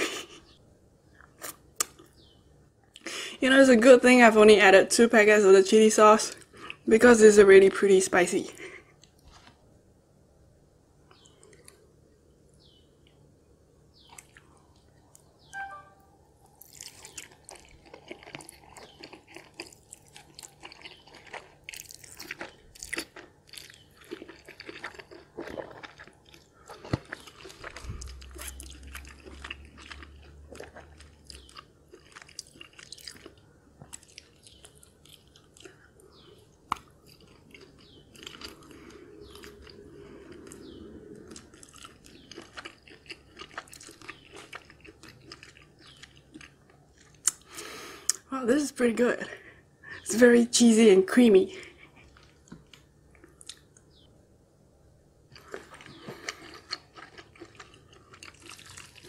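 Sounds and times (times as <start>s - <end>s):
person chewing and slurping: 16.6s - 36.2s, 36.8s - 48.2s, 55.3s - 59.0s.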